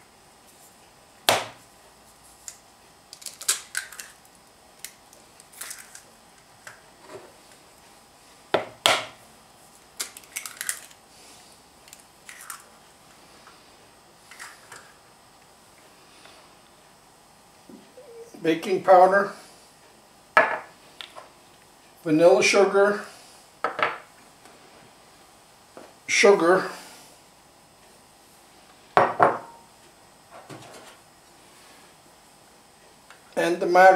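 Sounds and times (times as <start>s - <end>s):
eggshells cracking: 3.1s - 6.0s, 10.0s - 11.0s, 11.8s - 12.7s.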